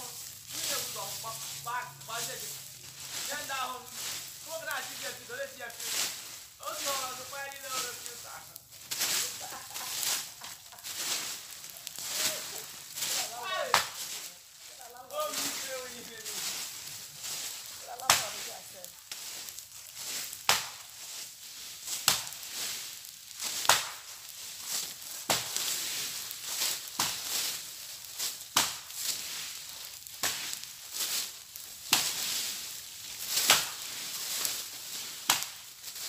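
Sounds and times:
dry leaves rustling: 0.0 - 36.0
hand tool chopping undergrowth: 13.7 - 14.1, 20.4 - 20.8, 23.5 - 24.1, 25.3 - 25.6, 27.0 - 27.2, 28.6 - 28.9, 33.3 - 33.9, 35.2 - 35.6.

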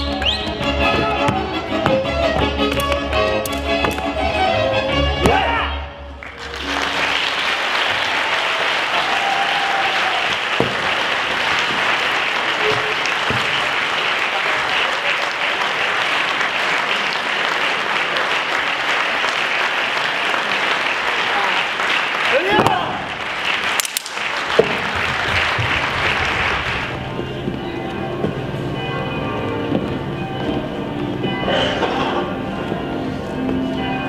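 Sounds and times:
audience applauding: 6.2 - 27.2.

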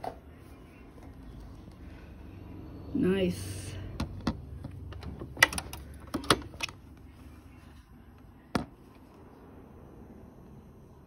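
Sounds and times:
mechanical clicks and knocks: 4.0 - 6.8.

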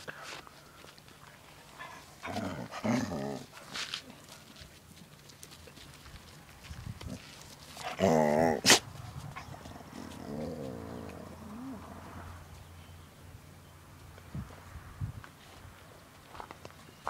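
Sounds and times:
dog growling: 2.2 - 3.5, 7.8 - 8.7, 9.5 - 12.1.

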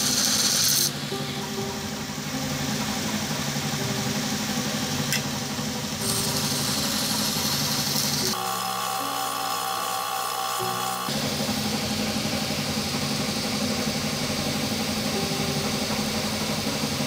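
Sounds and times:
blade grinding hiss: 0.0 - 1.2, 6.0 - 11.2
belt grinder motor hum: 0.0 - 17.0.

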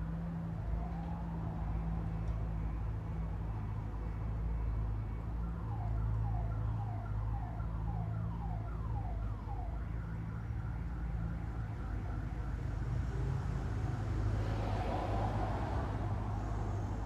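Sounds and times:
emergency siren yelping: 0.5 - 2.2, 5.4 - 13.4.

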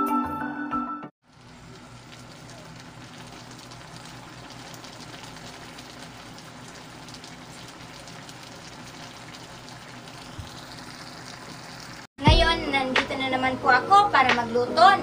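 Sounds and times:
soft bubbling crackle: 1.2 - 12.1.

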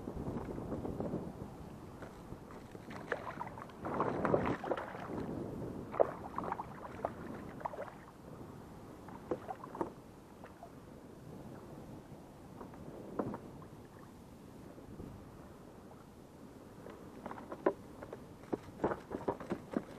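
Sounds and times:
fish thrashing in water: 2.6 - 5.3
knocks and clicks on kayak hull: 12.6 - 13.6, 16.9 - 19.9.

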